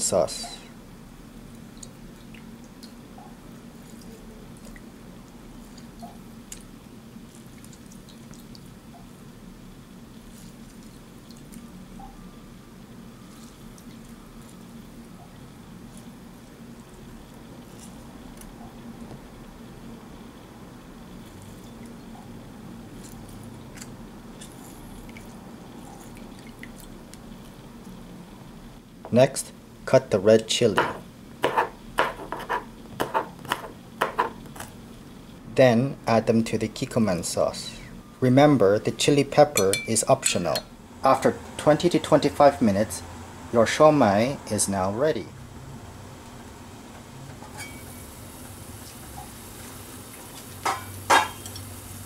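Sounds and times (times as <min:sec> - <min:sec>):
steady low hum: 0:00.0 - 0:52.0
juice dripping: 0:01.4 - 0:20.4, 0:21.0 - 0:28.4.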